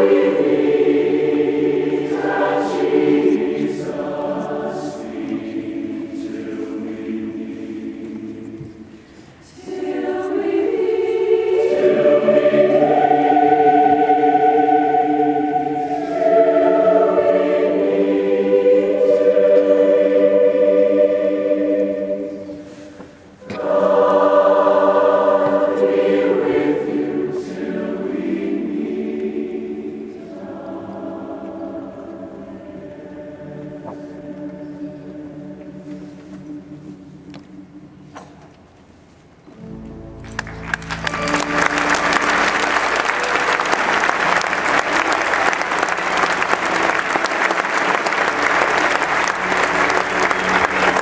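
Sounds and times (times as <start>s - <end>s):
choir with orchestra singing chords: 0.0s - 38.9s, 40.8s - 51.0s
large audience applauding: 40.2s - 51.0s.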